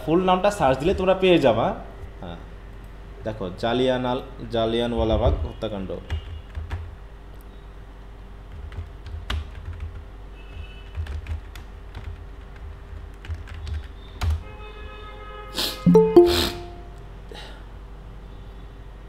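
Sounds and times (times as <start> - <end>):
computer keyboard typing: 6.2 - 6.9, 8.5 - 14.4.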